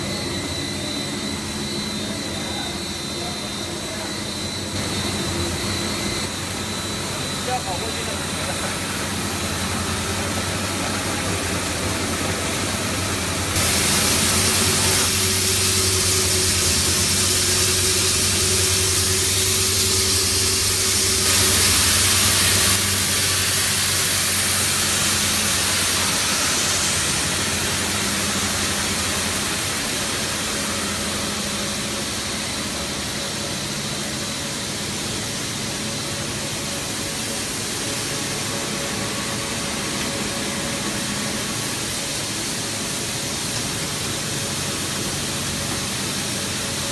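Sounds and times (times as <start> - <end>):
machine hum: 0.0 - 46.9
loud hiss: 13.4 - 46.9.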